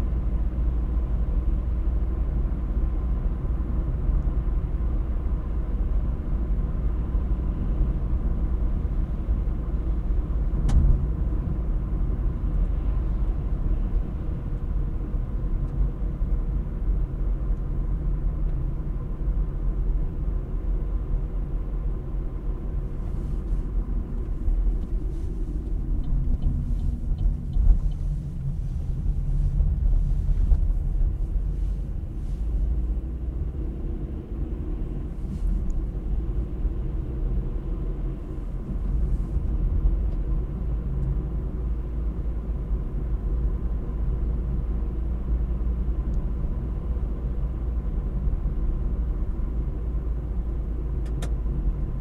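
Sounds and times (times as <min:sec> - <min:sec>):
car engine and road noise: 0:00.0 - 0:52.0.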